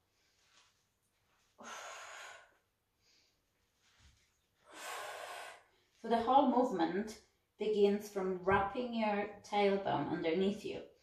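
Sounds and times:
woman breathing: 0:01.4 - 0:04.0, 0:04.6 - 0:06.0.

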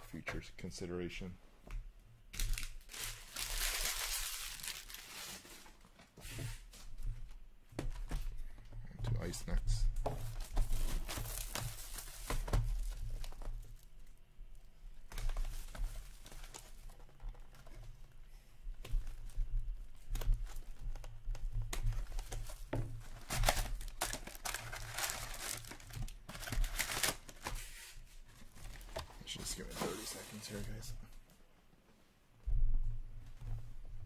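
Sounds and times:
plastic wrap crinkling and tearing: 0:02.4 - 0:05.8, 0:10.3 - 0:13.8, 0:21.8 - 0:27.8
cardboard box and foil packs handled: 0:02.4 - 0:06.6, 0:10.1 - 0:13.8, 0:15.0 - 0:18.2, 0:18.8 - 0:30.7.

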